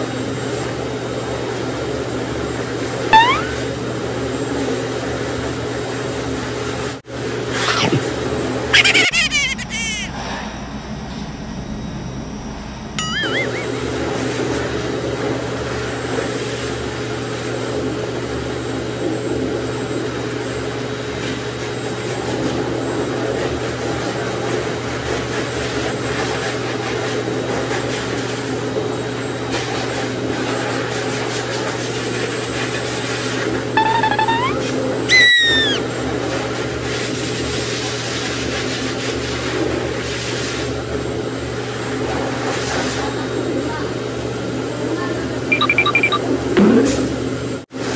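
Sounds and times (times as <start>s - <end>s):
puppy whining: 3.2s - 3.7s, 7.5s - 8.1s, 8.8s - 10.1s, 13.0s - 13.8s, 33.8s - 35.9s.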